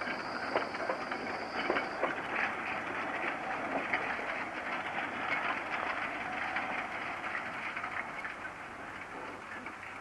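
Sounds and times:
faint high whine: 0:00.0 - 0:03.9
train rumbling on track: 0:00.0 - 0:10.0
wheels clicking and knocking: 0:00.0 - 0:10.0.

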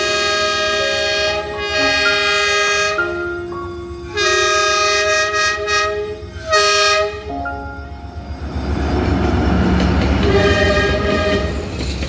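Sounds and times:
diesel locomotive horn blasts: 0:00.0 - 0:03.3, 0:04.1 - 0:07.4, 0:10.2 - 0:11.7.

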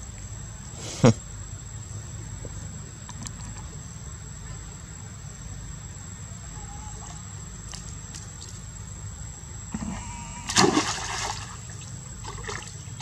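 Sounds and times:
high insect drone: 0:00.0 - 0:13.0
faint ticks: 0:02.4 - 0:03.8.

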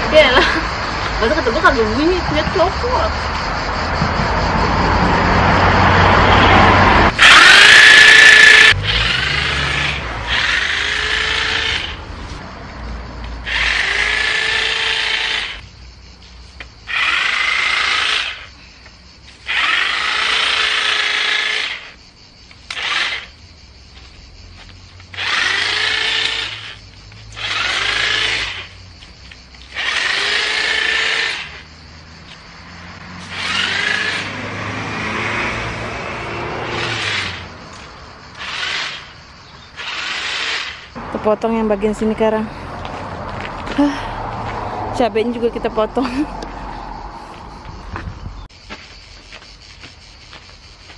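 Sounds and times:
electric chainsaw bursts: 0:06.3 - 0:12.1, 0:13.4 - 0:15.6, 0:16.9 - 0:18.5, 0:19.4 - 0:22.0, 0:22.6 - 0:23.3, 0:25.1 - 0:28.8, 0:29.7 - 0:31.7, 0:33.1 - 0:37.5, 0:38.3 - 0:40.9.

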